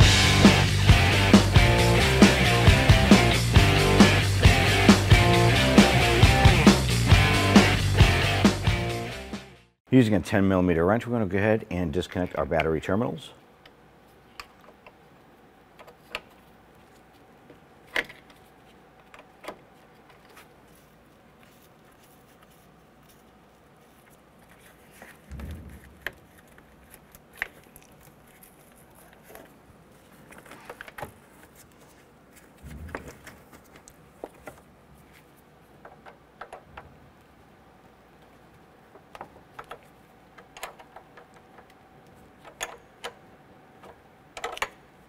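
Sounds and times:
dull thumps: 0:25.2 - 0:26.4.

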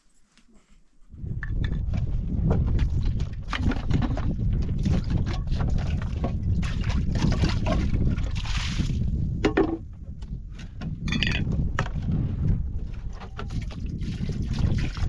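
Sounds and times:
wind rumbling on microphone: 0:01.1 - 0:15.0
water sloshing in can: 0:02.8 - 0:09.8
metal kettle handling: 0:11.1 - 0:11.4.

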